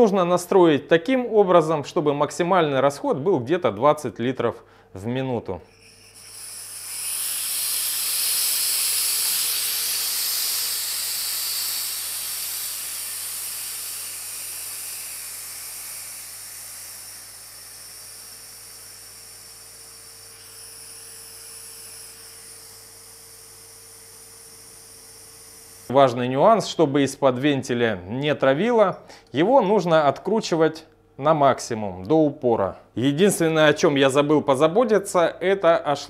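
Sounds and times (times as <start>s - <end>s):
gas hissing from regulator: 5.7s - 25.9s.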